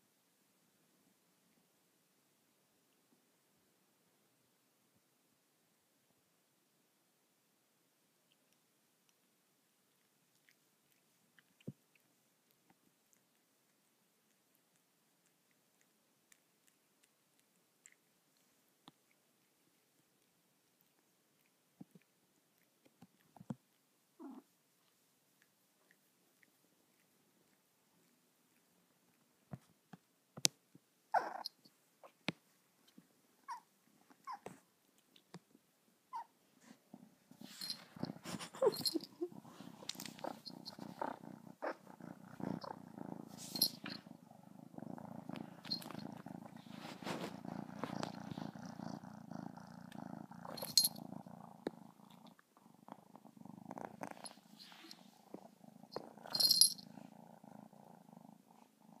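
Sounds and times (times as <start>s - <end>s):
cat purring: 0.0s - 59.0s
small collar bell tinkling: 43.5s - 44.0s, 50.6s - 51.0s, 56.2s - 56.9s.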